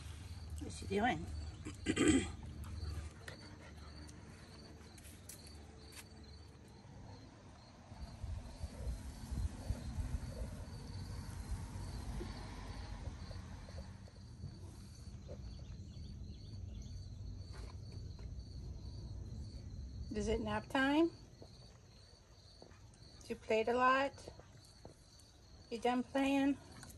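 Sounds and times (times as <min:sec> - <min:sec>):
insects chirping: 0:00.0 - 0:26.9
low rumble on microphone: 0:07.8 - 0:17.0.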